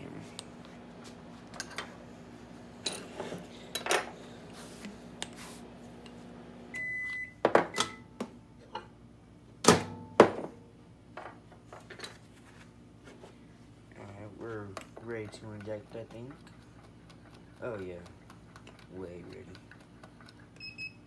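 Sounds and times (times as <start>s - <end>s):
microwave humming: 0.0s - 11.5s
microwave beep: 6.6s - 8.2s, 20.6s - 21.0s.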